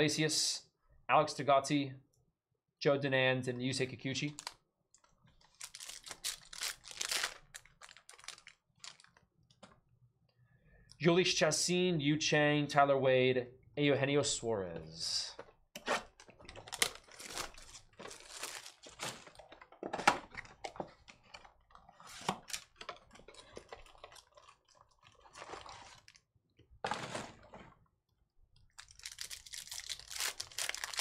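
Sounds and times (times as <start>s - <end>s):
foil pack crinkling and tearing: 4.4s - 4.6s, 5.4s - 9.2s, 16.5s - 19.6s, 22.3s - 26.2s, 28.7s - 31.0s.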